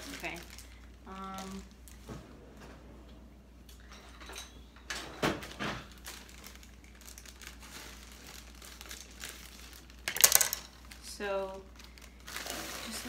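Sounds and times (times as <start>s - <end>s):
plastic bag crinkling: 0.0s - 2.0s, 5.8s - 13.0s.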